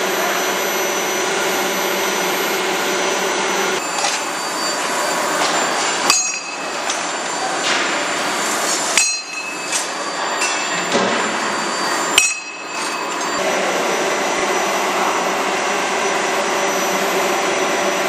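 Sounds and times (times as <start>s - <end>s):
machine and shop noise: 0.0s - 18.0s
sharp metal clanks: 5.4s - 7.9s, 8.9s - 11.4s, 12.1s - 13.4s.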